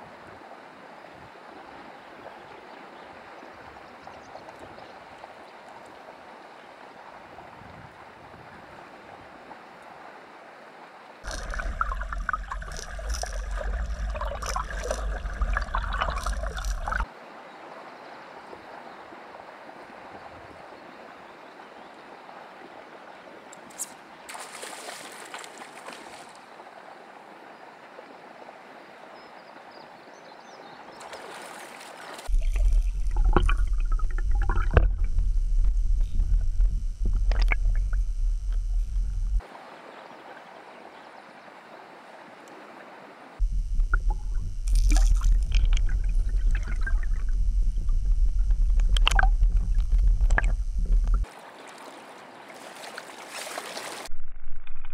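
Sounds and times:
river water flowing: 0:00.0 - 0:35.1, 0:39.4 - 0:43.4, 0:51.2 - 0:54.1
underwater rumble with ticks: 0:11.2 - 0:17.1, 0:32.3 - 0:39.4, 0:43.4 - 0:51.3.

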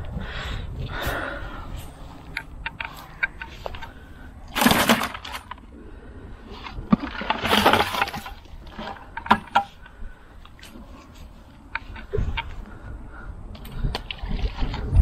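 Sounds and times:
rustling and crackling: 0:00.0 - 0:05.7.

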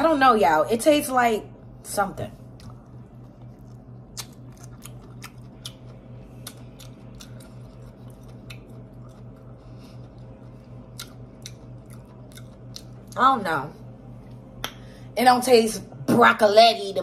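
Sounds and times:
steady low hum: 0:00.0 - 0:17.0
crisp chewing crunches: 0:02.5 - 0:13.2.

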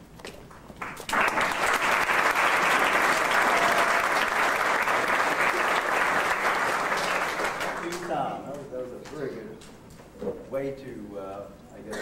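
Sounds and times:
crowd applauding: 0:00.8 - 0:08.4.

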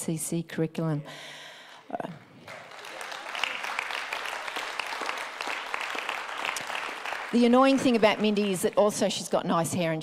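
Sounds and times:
crowd applauding: 0:02.4 - 0:09.3.

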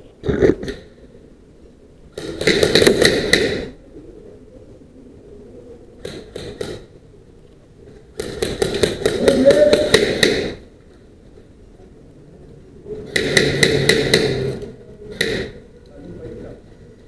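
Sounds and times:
airsoft rifles firing: 0:02.2 - 0:03.8, 0:08.2 - 0:10.7, 0:13.0 - 0:15.6.

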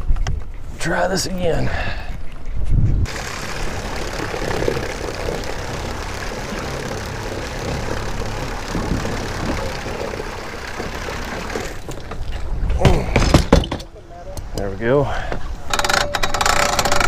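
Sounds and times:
electric trolling motor running: 0:03.1 - 0:12.3
water rushing: 0:03.1 - 0:12.6.

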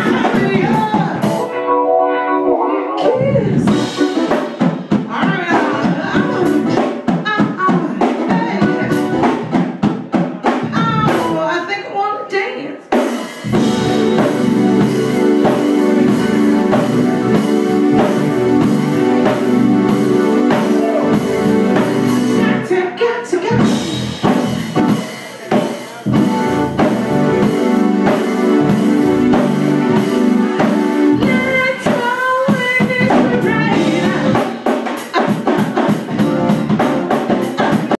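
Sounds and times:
drum kit beat: 0:00.0 - 0:01.8, 0:03.0 - 0:11.6, 0:12.9 - 0:22.8, 0:23.5 - 0:37.9
keyboard: 0:00.0 - 0:11.8, 0:13.0 - 0:37.9
woman singing: 0:05.0 - 0:09.2, 0:22.4 - 0:23.9, 0:31.2 - 0:34.6.

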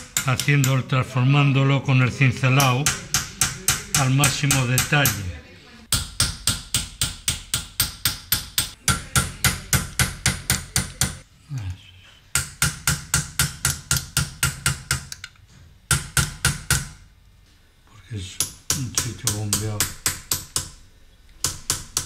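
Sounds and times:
hammer tapping metal tool: 0:00.0 - 0:00.9, 0:02.5 - 0:11.2, 0:12.3 - 0:17.0, 0:18.4 - 0:20.8, 0:21.4 - 0:22.0.

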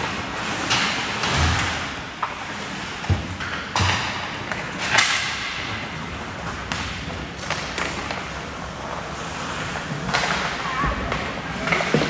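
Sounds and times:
hockey sticks and puck clacking: 0:00.0 - 0:12.0
skate blades scraping ice: 0:05.9 - 0:12.0.

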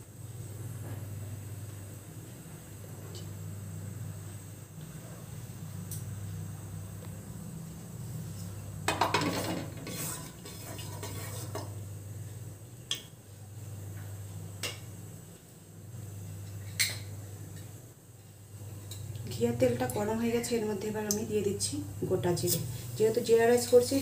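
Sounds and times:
utensil scraping metal pot: 0:09.2 - 0:11.7.

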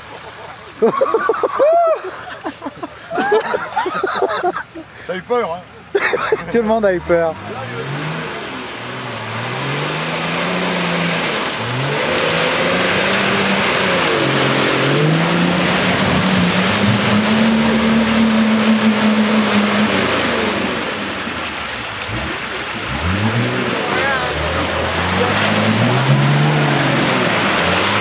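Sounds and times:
off-road engine revving hard: 0:06.2 - 0:28.0.

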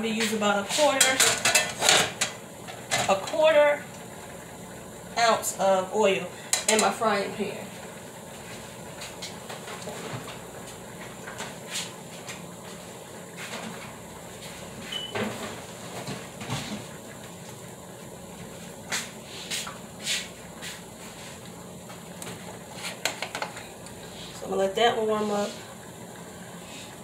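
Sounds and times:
low background hum: 0:00.0 - 0:27.0
knocks and clunks in kitchen: 0:00.8 - 0:03.5, 0:14.9 - 0:17.0, 0:21.9 - 0:23.7.

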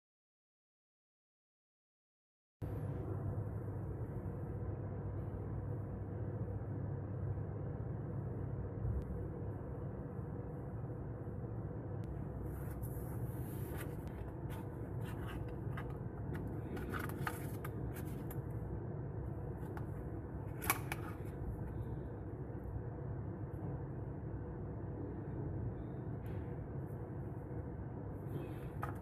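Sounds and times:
steady low hum: 0:02.6 - 0:29.0.

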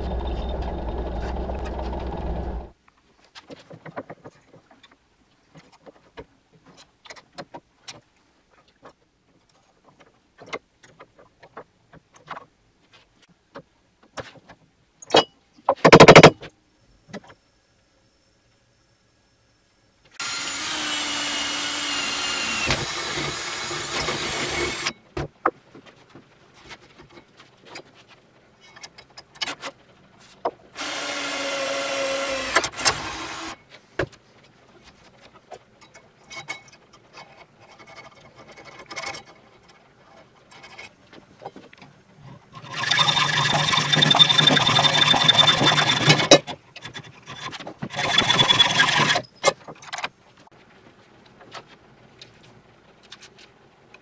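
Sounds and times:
cordless drill boring into steel: 0:20.2 - 0:24.9, 0:30.8 - 0:33.6, 0:42.6 - 0:46.3, 0:48.0 - 0:49.2.

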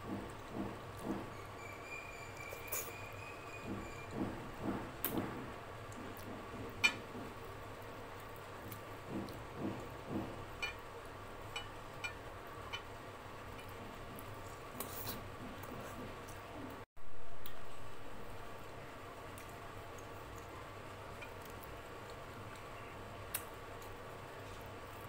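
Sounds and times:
soft chewing: 0:13.5 - 0:16.8, 0:19.2 - 0:25.0.

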